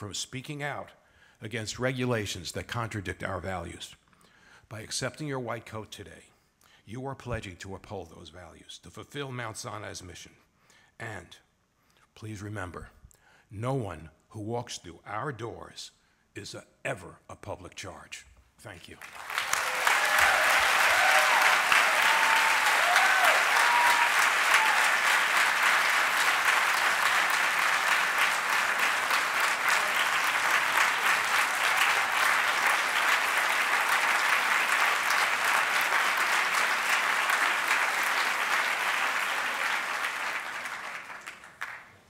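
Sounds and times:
audience applause: 19.0s - 41.9s.

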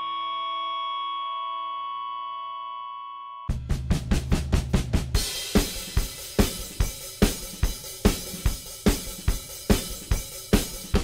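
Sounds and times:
drum kit beat: 3.5s - 11.0s.

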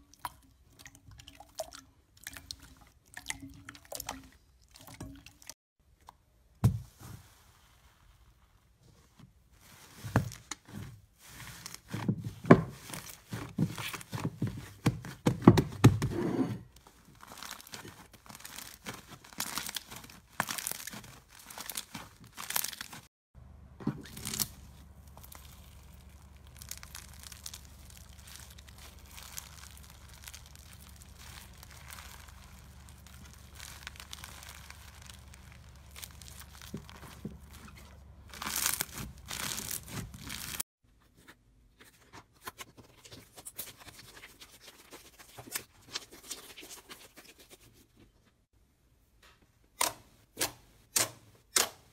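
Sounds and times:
slime squishing: 11.2s - 15.8s, 16.8s - 23.1s, 23.8s - 40.6s.

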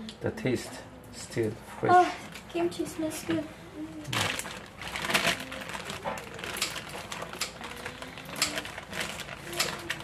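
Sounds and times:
plastic bag crinkling: 4.1s - 10.0s.

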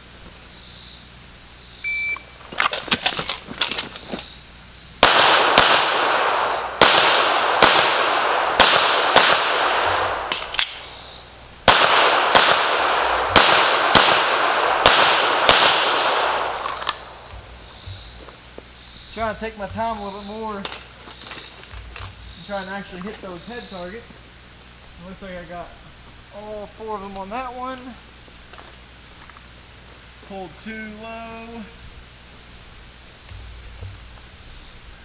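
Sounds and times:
shot timer beep: 1.8s - 2.3s
pistol shots hitting steel: 11.7s - 17.1s
running footsteps: 16.6s - 23.4s.

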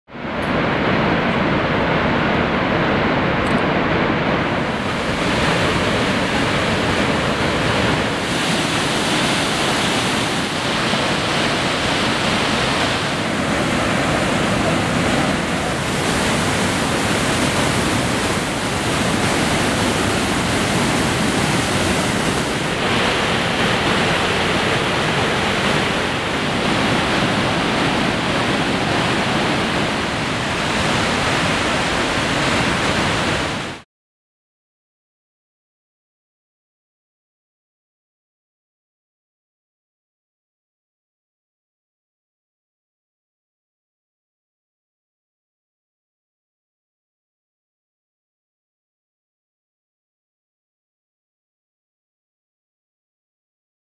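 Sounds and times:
waterfall rushing: 0.2s - 33.8s.

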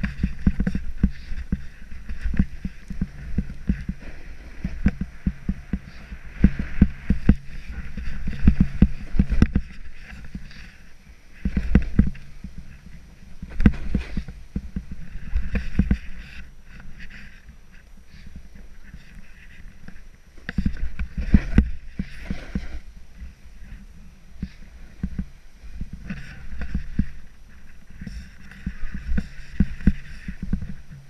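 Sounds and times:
thumps over bumps: 0.0s - 10.8s, 11.4s - 17.4s, 18.4s - 23.4s, 24.4s - 31.0s
snowboard hissing through snow: 0.0s - 14.5s, 21.0s - 30.9s
wind rumble on microphone: 0.0s - 31.0s.

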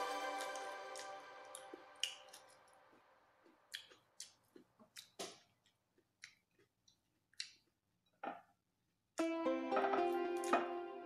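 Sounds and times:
background music: 0.0s - 3.2s, 9.2s - 11.0s
person chewing food: 0.3s - 8.5s.

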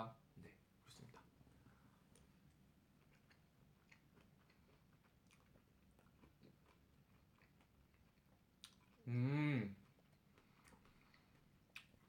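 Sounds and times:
person chewing food: 2.1s - 9.0s, 9.8s - 12.0s.

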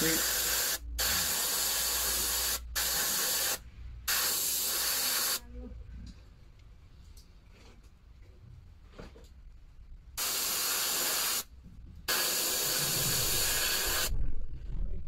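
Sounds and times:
airbrush hissing bursts: 0.0s - 5.4s, 10.2s - 11.5s, 12.1s - 14.1s.

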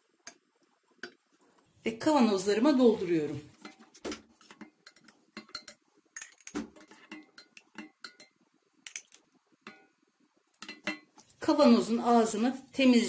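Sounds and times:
metal ladle clinking and scraping pot: 3.6s - 9.1s.

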